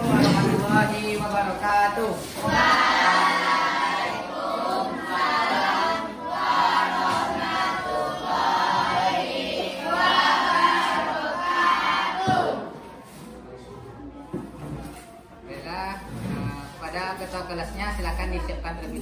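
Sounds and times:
students chanting in unison: 2.1s - 12.8s.

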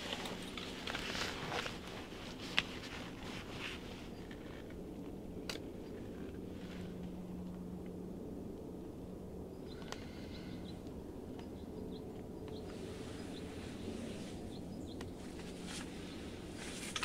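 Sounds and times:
fabric rustling: 0.0s - 4.6s
low steady hum: 0.0s - 17.0s
faint bird chirps: 9.5s - 10.8s.

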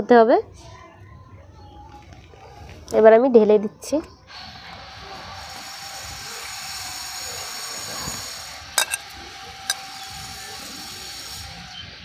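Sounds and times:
plate tapping against wok: 8.8s - 9.1s.

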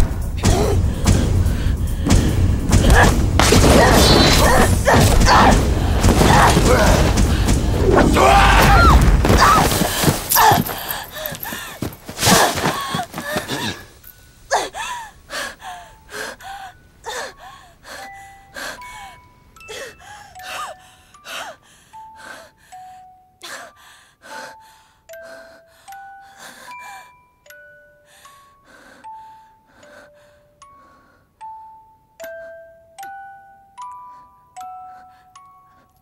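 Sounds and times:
woman gasping for breath: 9.7s - 27.2s.

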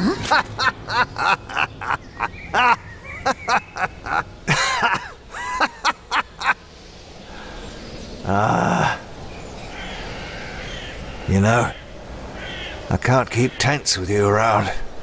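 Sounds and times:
man laughing hard: 0.0s - 6.6s.

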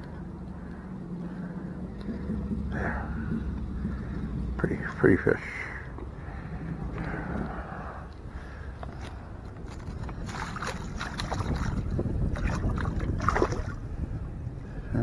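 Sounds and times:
low wind rumble on microphone: 0.0s - 15.0s
net splashing in water: 10.2s - 13.8s.

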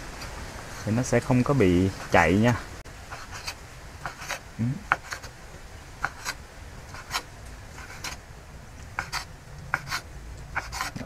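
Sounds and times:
knife cutting on wooden board: 3.1s - 5.3s, 6.0s - 8.2s, 9.0s - 11.0s.

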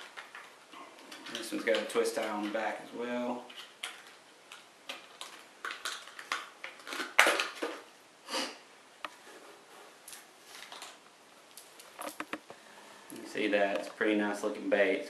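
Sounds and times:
plastic packaging crackling: 3.5s - 7.9s, 10.0s - 12.4s.

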